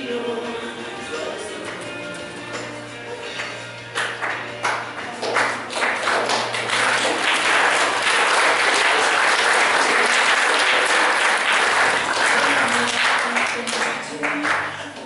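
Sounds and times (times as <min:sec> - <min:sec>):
music: 0:00.0 - 0:15.0
audience applauding: 0:03.4 - 0:14.7.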